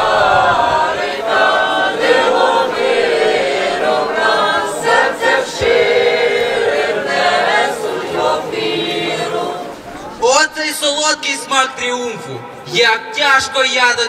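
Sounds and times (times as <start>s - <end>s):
choir singing slow carol: 0.0s - 10.2s.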